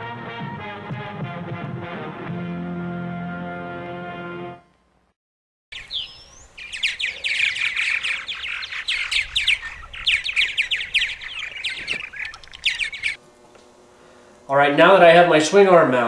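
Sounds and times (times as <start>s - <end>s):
music: 0.0s - 4.8s
birds chirping and warbling: 5.7s - 13.2s.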